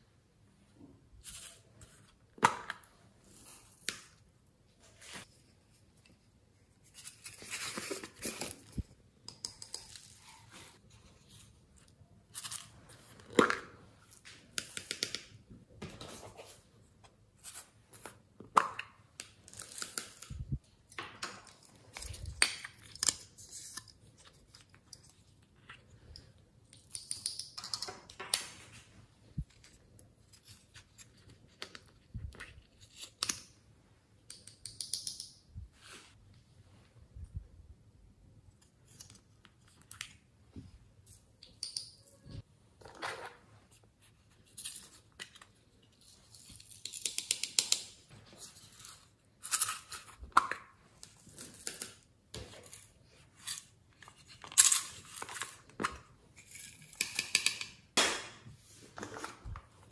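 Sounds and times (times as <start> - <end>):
plastic toys tapping and clicking: 46.8 - 47.9, 56.9 - 57.8.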